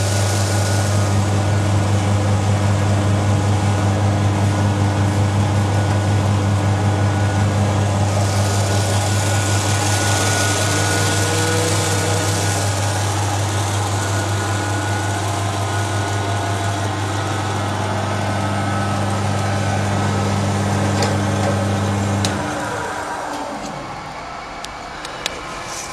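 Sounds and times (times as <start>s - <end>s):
rice pouring: 0.0s - 1.8s, 7.9s - 18.6s
motor hum: 0.0s - 25.9s.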